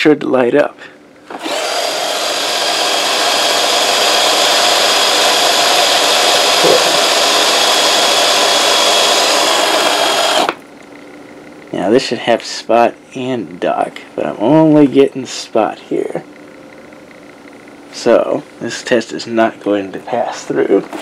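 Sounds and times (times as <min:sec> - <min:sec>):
brush motor whirring with whine: 0:01.3 - 0:10.6.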